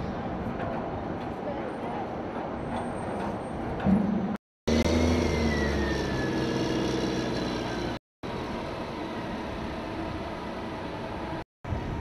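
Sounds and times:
crane engine humming: 0:04.7 - 0:11.4.

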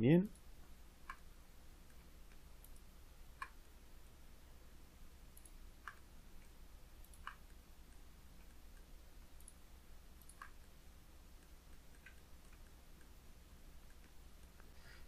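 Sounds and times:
low steady hum: 0:00.0 - 0:15.0
faint computer mouse clicks: 0:00.3 - 0:03.6, 0:05.3 - 0:06.1, 0:07.0 - 0:09.6, 0:10.2 - 0:10.6, 0:11.4 - 0:13.1.

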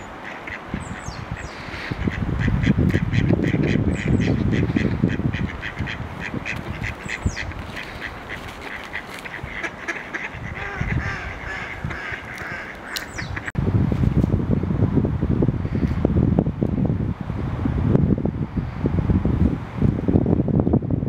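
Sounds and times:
ducks quacking: 0:00.0 - 0:13.6
small bird chirping: 0:12.9 - 0:13.5.

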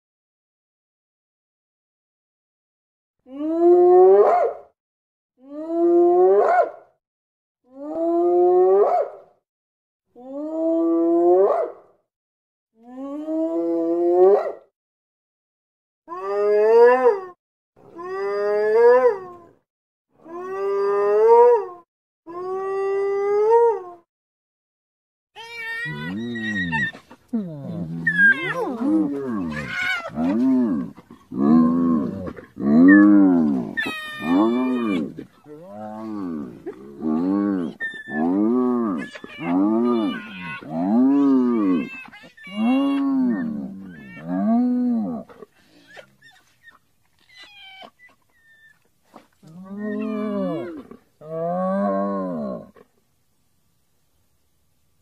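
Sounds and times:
hyena calls: 0:25.4 - 0:46.8, 0:49.4 - 0:51.0.

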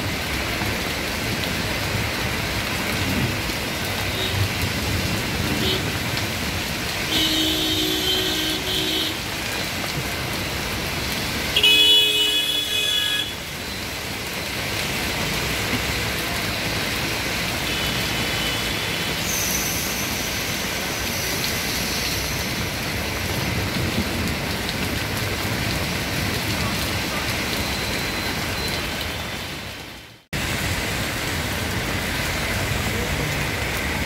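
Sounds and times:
heavy rain: 0:00.0 - 0:34.0
traffic on wet street: 0:00.0 - 0:34.0
vehicle horn: 0:07.0 - 0:09.3, 0:11.6 - 0:13.4.

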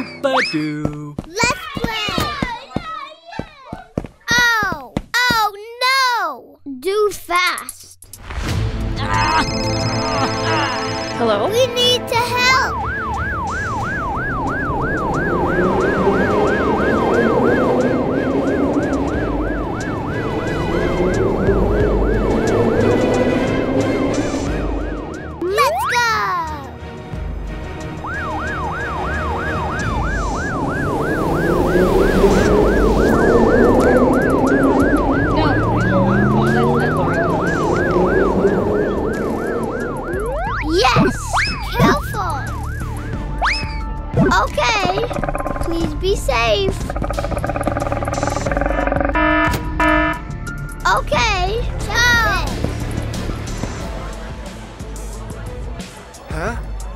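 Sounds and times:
fast yelping siren: 0:11.8 - 0:26.6, 0:28.0 - 0:44.0, 0:46.8 - 0:50.3.

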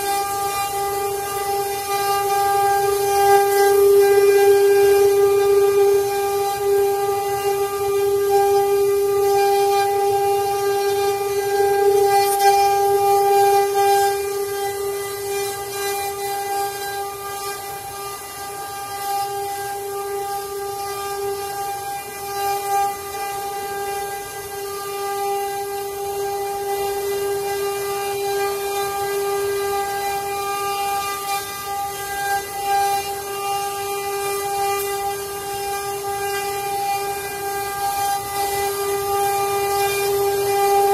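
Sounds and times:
router spindles whining: 0:00.0 - 0:40.9.

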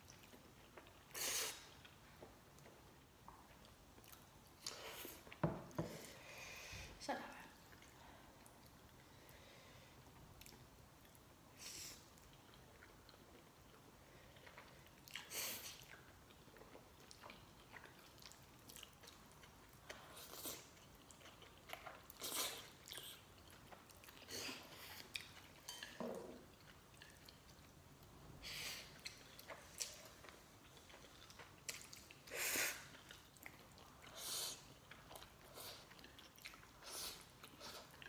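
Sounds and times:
chewing: 0:00.0 - 0:05.4, 0:12.1 - 0:28.1, 0:28.7 - 0:38.0.

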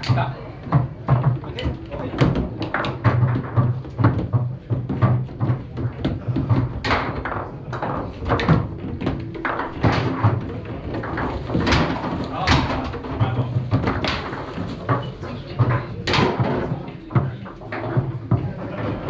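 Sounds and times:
foosball ball knocks and clacks: 0:00.0 - 0:19.0.

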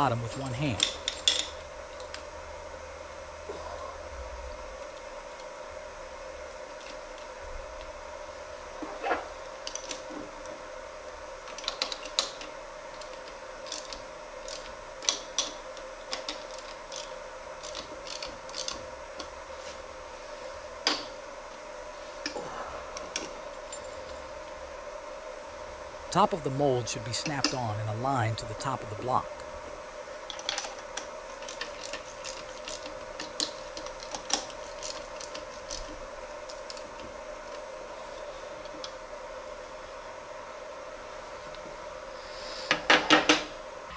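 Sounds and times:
faint steady hum: 0:00.0 - 0:43.9.

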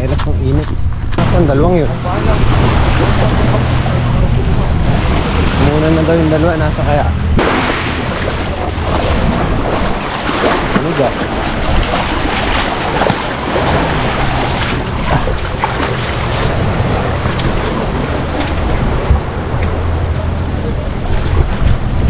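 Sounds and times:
wind buffeting microphone: 0:00.0 - 0:22.0
waves washing onto pebble beach: 0:07.4 - 0:18.9.

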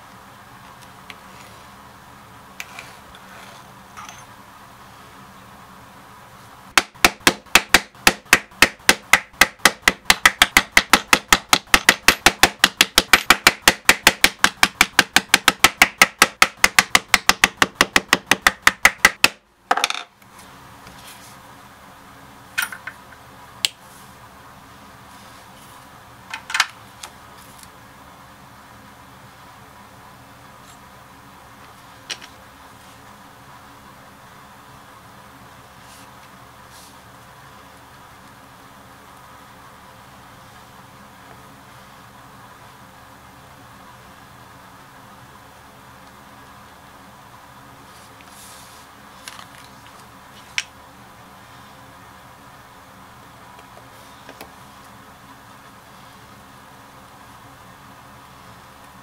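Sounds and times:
mallet striking chisel: 0:06.8 - 0:19.4.

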